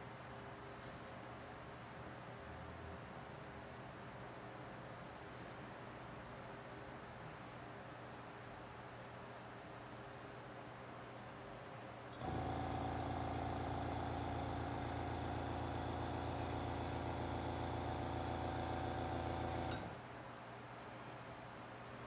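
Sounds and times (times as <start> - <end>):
air compressor humming: 12.2 - 20.0.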